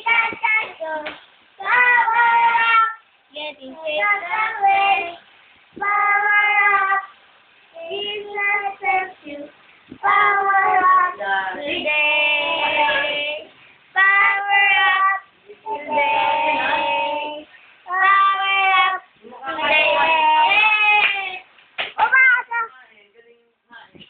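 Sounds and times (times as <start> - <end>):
girl singing: 0.0 - 21.5.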